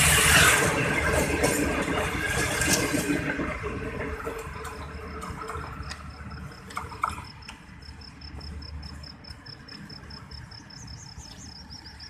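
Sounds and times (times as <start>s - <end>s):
train coaches rumbling: 0.0s - 12.0s
insect chirping: 5.7s - 12.0s.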